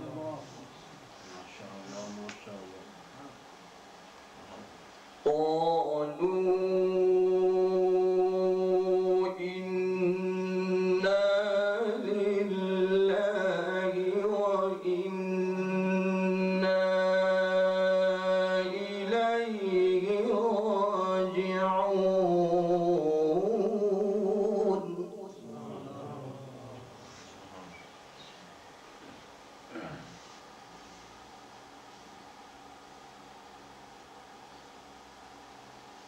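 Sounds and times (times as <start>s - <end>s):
man chanting melodically: 5.2s - 27.0s.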